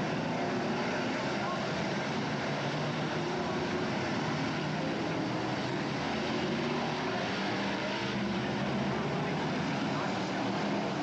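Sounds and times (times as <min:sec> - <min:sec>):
racing car engines: 0:00.0 - 0:11.0.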